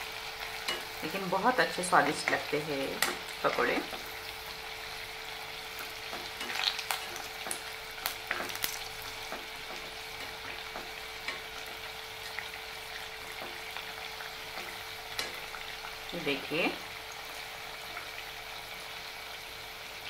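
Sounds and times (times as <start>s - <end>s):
food deep-frying in oil: 0.0s - 20.0s.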